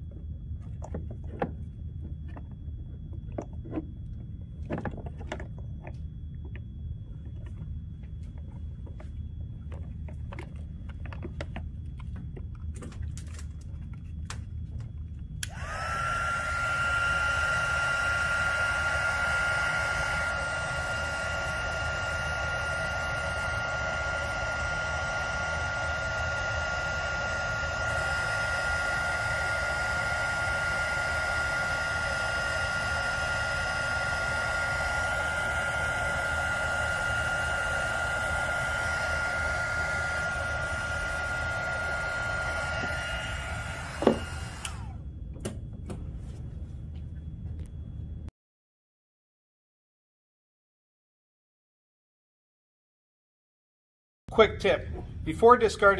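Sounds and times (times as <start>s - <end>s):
heat gun blowing with whine: 15.4s - 45.6s.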